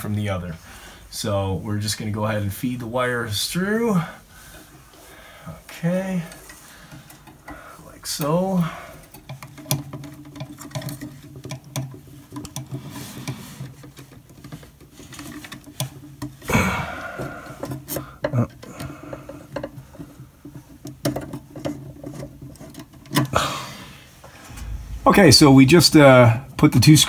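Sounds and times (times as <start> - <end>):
steady low hum: 24.2 - 26.6.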